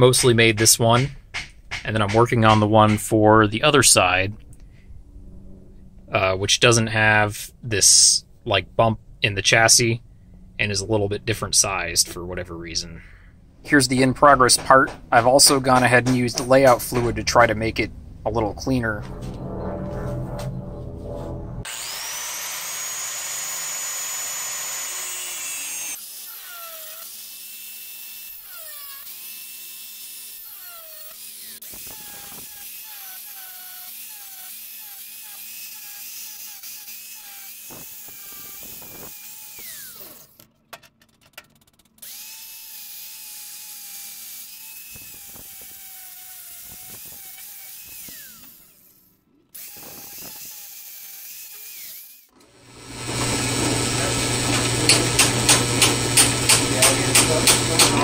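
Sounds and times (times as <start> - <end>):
angle grinder grinding metal: 13.7 - 40.4, 42.0 - 58.0.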